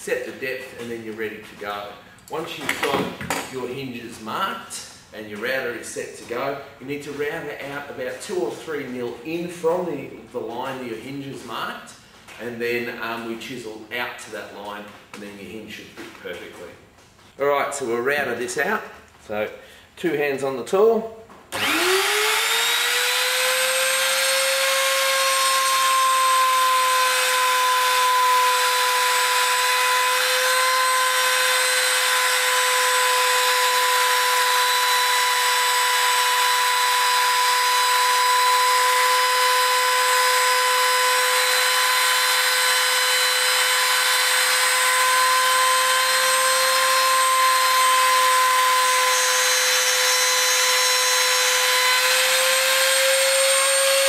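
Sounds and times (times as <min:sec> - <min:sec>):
router whining: 0:21.5 - 0:54.0.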